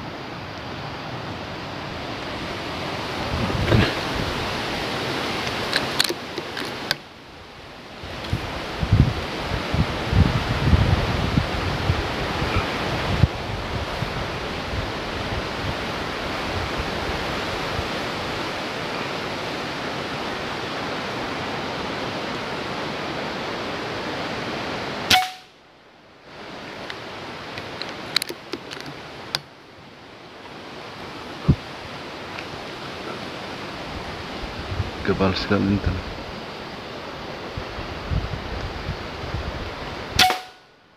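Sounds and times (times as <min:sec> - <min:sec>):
wind rustling foliage: 0:00.0 - 0:40.9
rifle shot: 0:25.1 - 0:25.6, 0:40.2 - 0:40.6
sharp crack: 0:25.1 - 0:25.6, 0:40.2 - 0:40.7.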